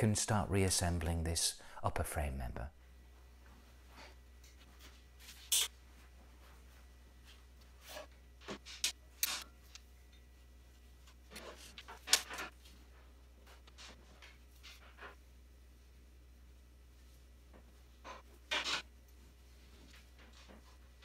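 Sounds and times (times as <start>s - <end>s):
steady low hum: 0.0s - 21.0s
handling rubs and scrapes: 3.9s - 9.4s.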